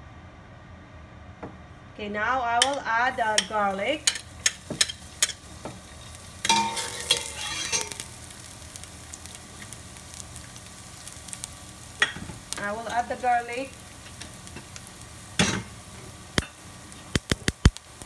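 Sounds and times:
garlic sizzling in oil: 3.1s - 18.0s
metal spoon clinking in pot: 6.5s - 8.0s.

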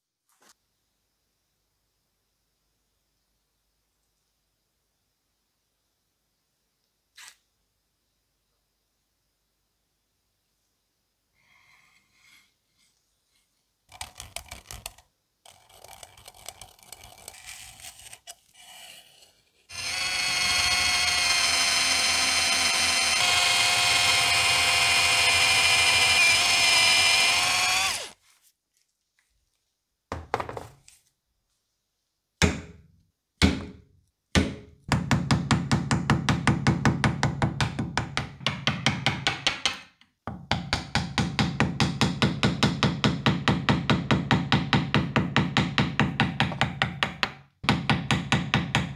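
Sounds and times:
electric drill boring through steel: 19.7s - 28.2s.

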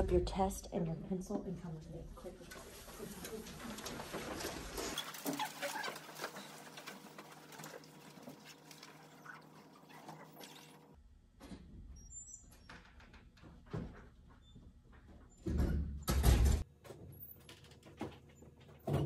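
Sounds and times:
paper rustling: 2.4s - 10.8s.

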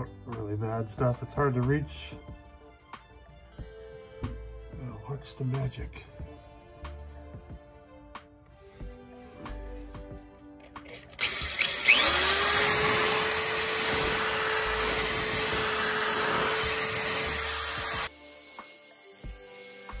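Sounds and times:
power drill whining: 10.8s - 20.0s.

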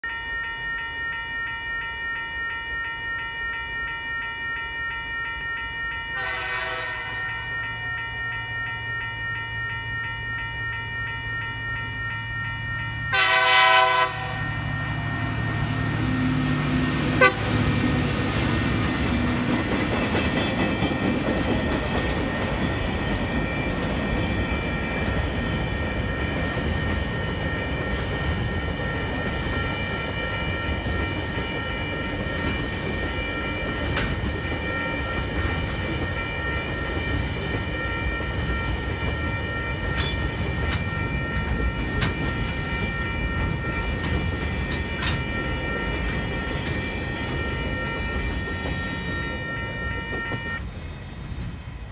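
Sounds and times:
level crossing bell ringing: 0.0s - 50.6s
train horn blasts: 6.2s - 7.2s, 13.1s - 14.6s, 17.2s - 17.6s
diesel locomotive engine rumbling: 6.2s - 51.9s.

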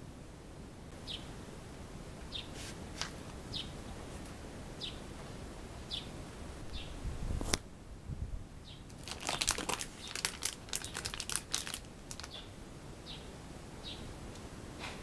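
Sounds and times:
plastic packet crinkling: 8.9s - 12.4s.

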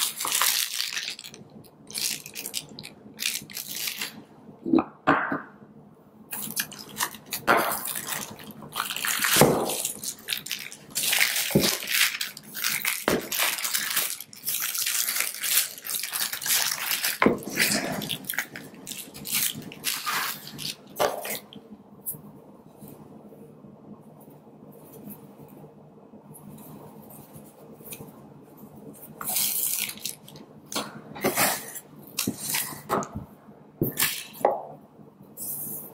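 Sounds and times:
plastic wrapping crinkling: 0.0s - 4.2s, 6.4s - 21.6s, 29.1s - 32.9s
packaging knocks: 11.0s - 14.2s.

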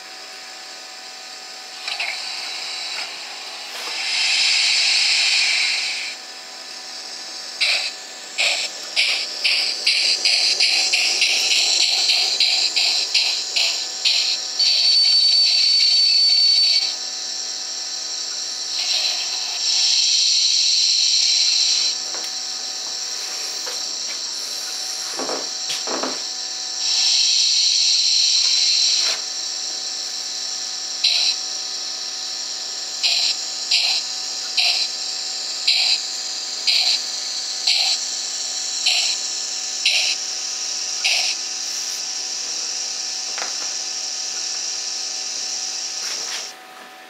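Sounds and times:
steam hisses: 1.8s - 6.2s, 7.6s - 14.3s, 18.8s - 19.6s, 38.8s - 39.2s
steam locomotive chuffs: 7.6s - 15.0s.

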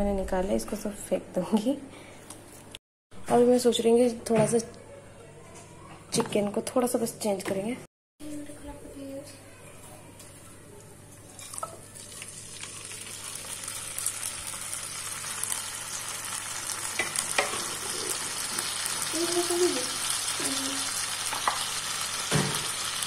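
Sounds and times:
curry sizzling in hot oil: 11.4s - 23.0s.

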